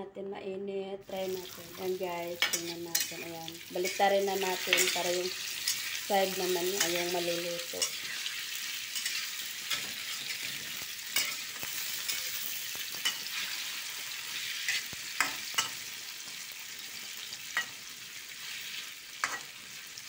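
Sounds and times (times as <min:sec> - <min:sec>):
tofu sizzling in a wok: 0:01.1 - 0:20.0
metal spatula scraping a wok: 0:02.3 - 0:04.0, 0:06.7 - 0:15.8.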